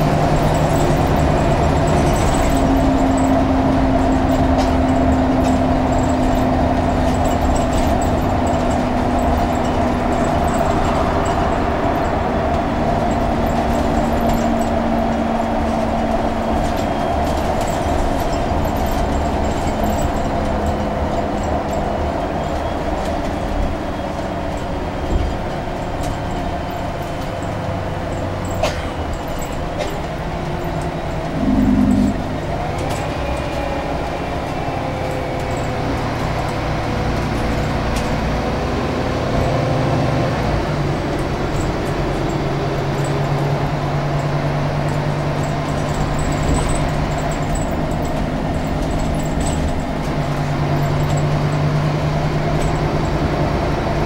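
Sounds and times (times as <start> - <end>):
bus engine running: 0.0 - 54.0
brief low tone: 31.4 - 32.7
tone sliding in pitch: 31.4 - 32.7.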